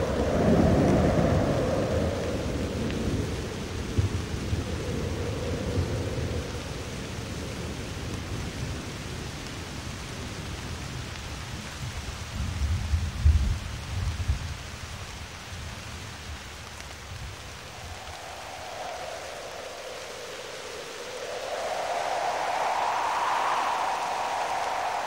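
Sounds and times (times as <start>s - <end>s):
thunder rumbling: 0.0s - 8.4s, 17.3s - 25.0s
rain-like hiss: 0.0s - 25.0s.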